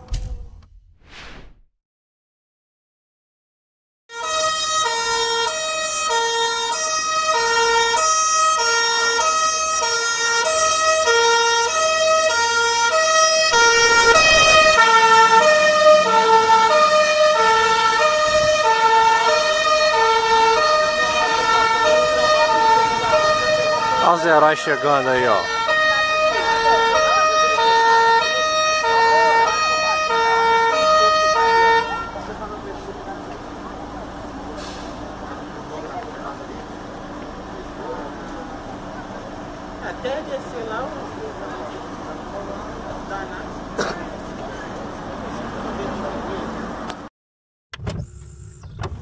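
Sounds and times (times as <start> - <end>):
short whoosh: 0.1 - 1.8
fire truck siren two-tone: 4.1 - 32.3.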